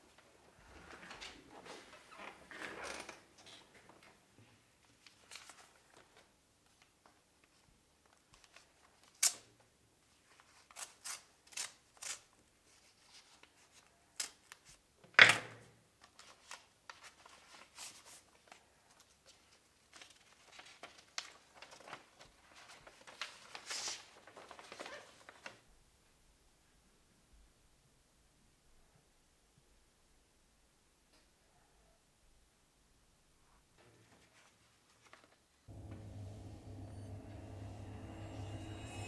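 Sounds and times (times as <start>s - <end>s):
paper rustling: 4.8s - 9.4s, 16.0s - 25.6s, 34.0s - 35.6s
paper crackles and rips: 10.3s - 14.7s, 16.0s - 25.6s.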